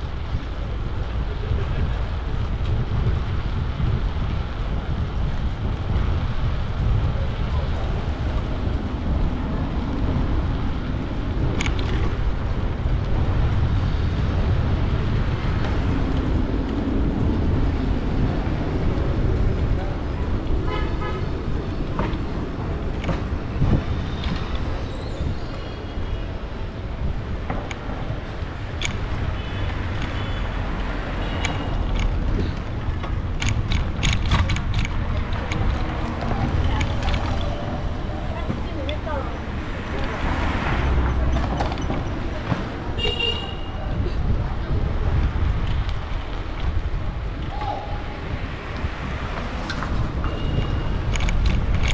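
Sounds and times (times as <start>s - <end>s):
low rumble of traffic: 0.0s - 51.9s
sharp clicks: 31.3s - 32.2s.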